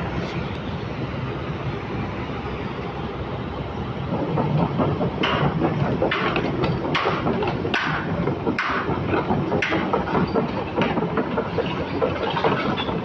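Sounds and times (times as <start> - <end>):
diesel engine running: 0.0 - 13.0
track chain clattering: 4.1 - 13.0.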